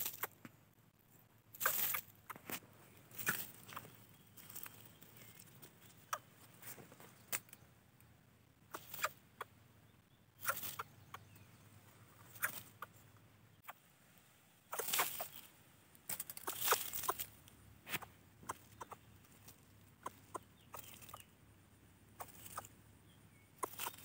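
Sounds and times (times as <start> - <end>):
dry leaves and twigs rustling: 0.0 - 0.4, 1.1 - 7.7, 8.7 - 9.2, 10.4 - 13.0, 13.7 - 21.4, 22.1 - 22.8, 23.6 - 24.0.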